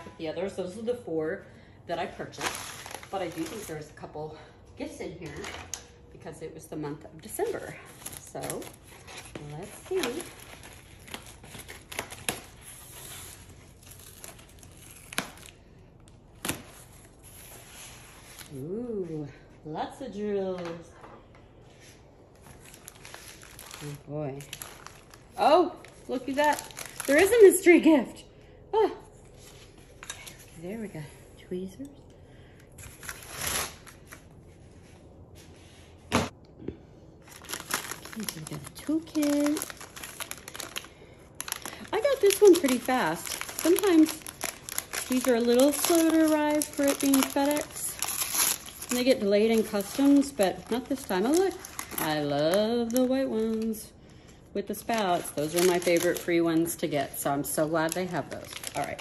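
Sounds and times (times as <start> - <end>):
plastic packaging crinkling: 2.2 - 4.0, 7.2 - 18.7, 22.3 - 27.7, 37.2 - 53.9, 54.6 - 59.0
paper bag rustling: 22.3 - 27.5, 37.3 - 53.7, 54.8 - 59.0.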